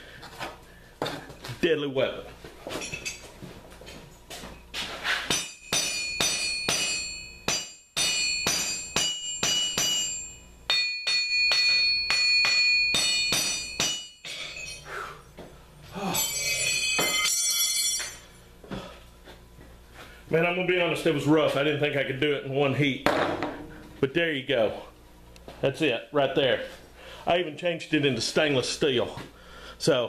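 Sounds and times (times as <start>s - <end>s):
hammer striking steel on anvil: 5.2s - 14.8s, 16.1s - 18.3s.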